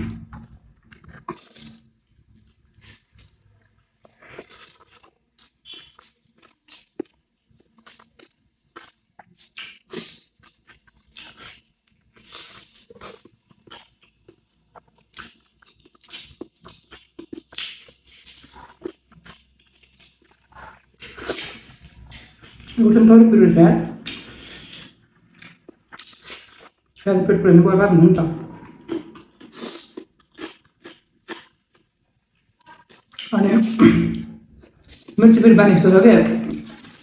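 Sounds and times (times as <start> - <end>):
crunching and chewing: 0.3 - 22.8, 24.0 - 27.0, 28.6 - 33.3, 36.5 - 37.0.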